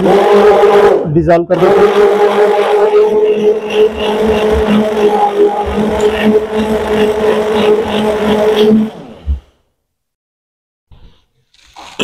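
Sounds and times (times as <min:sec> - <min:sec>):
electric stirrer motor humming: 0:01.6 - 0:09.5.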